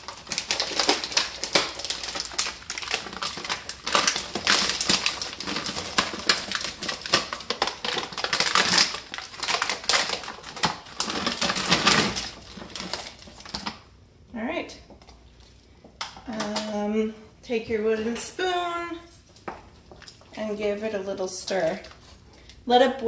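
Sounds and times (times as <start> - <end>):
plastic package crinkling: 0.0 - 14.0.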